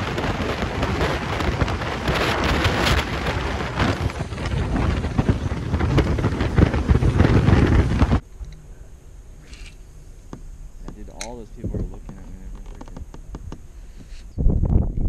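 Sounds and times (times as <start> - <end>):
wind buffeting microphone: 0.0 - 8.2, 10.9 - 15.0.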